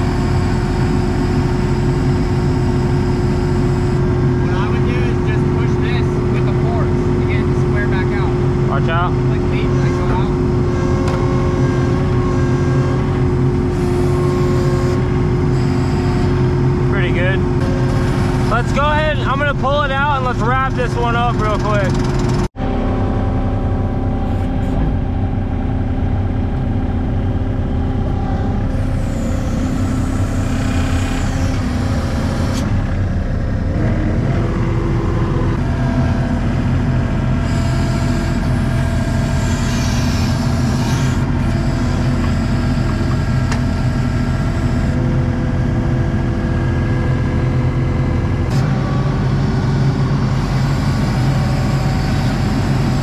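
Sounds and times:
diesel engine running: 0:00.0 - 0:53.0
high whine: 0:00.0 - 0:53.0.

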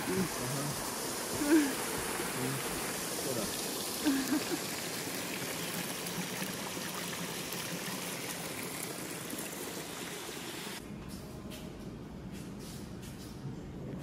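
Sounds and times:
fountain water splashing: 0:00.0 - 0:10.8.

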